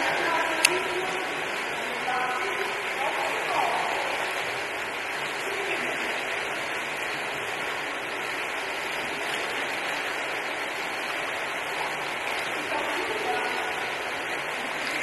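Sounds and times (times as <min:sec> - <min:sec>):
water rushing in a pool: 0:00.0 - 0:15.0.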